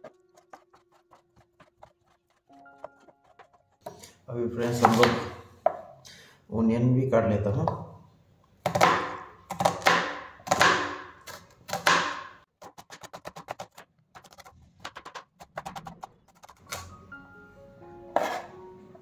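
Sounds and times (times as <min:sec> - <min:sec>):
knife slicing onion: 0:00.0 - 0:05.4.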